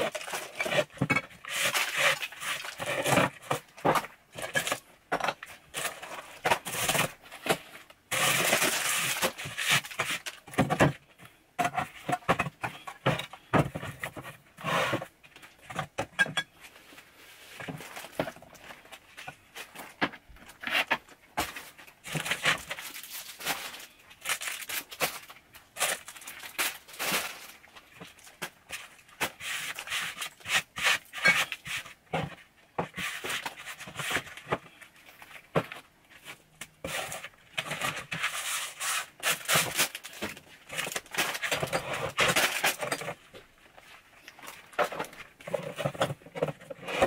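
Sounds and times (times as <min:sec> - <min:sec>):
gloved hand rubbing packaging: 0:38.0 - 0:40.2.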